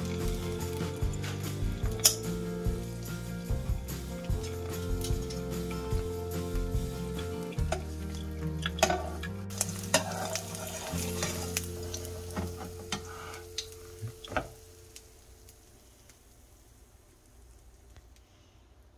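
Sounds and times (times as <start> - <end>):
soft background music: 0.0 - 15.6
egg sizzling in a frying pan: 0.0 - 18.9
metal spatula scraping a pan: 8.6 - 13.5.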